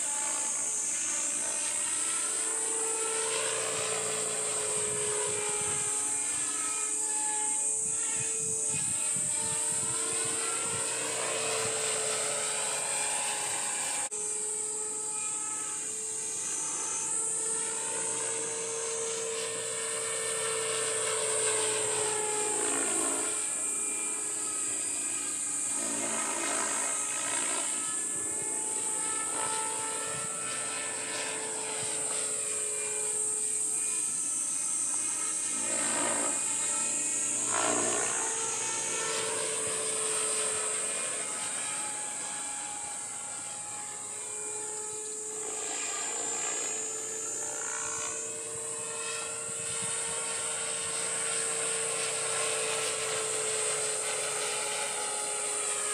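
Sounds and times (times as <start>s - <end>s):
model helicopter motor whine: 0.0s - 55.9s.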